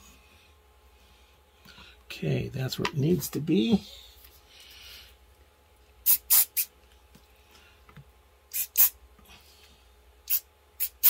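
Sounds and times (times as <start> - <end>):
aerosol can spraying: 6.0 - 6.7, 8.5 - 9.0, 10.3 - 11.0.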